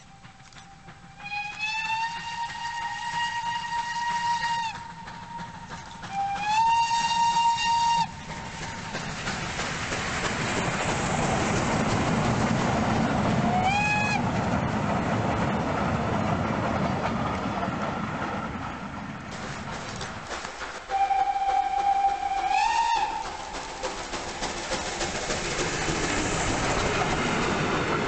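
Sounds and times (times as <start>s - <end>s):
steam locomotive whistle: 0.0s - 8.9s, 13.5s - 14.2s, 20.9s - 23.8s
train passing rushing noise: 0.0s - 28.0s.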